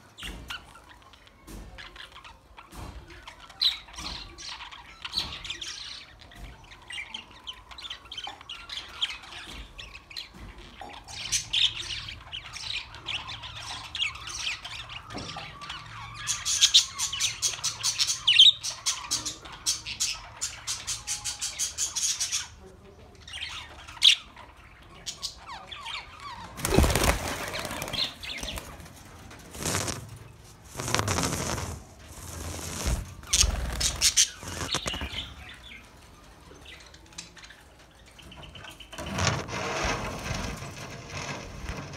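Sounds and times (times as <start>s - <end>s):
budgerigars chirping and squawking: 0.2s - 28.9s, 30.7s - 39.4s
wings flapping: 26.6s - 35.2s.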